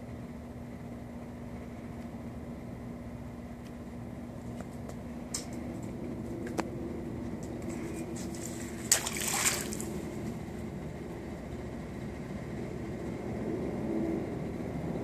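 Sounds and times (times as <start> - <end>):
steady low hum: 0.0 - 15.0
lure smacking into water: 8.8 - 9.9.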